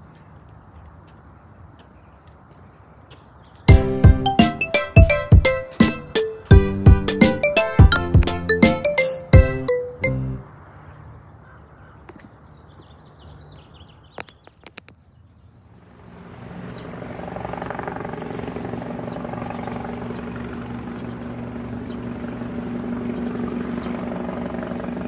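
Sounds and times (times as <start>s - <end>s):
helicopter flying: 15.9s - 25.0s.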